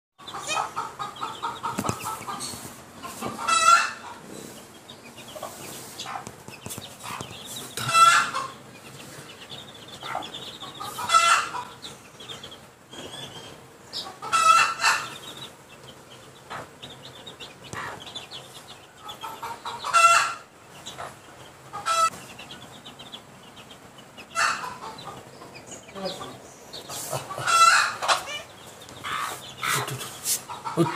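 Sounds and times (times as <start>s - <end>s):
soft chatter of chick calls: 0.2s - 30.9s
loud chick call: 26.9s - 30.9s.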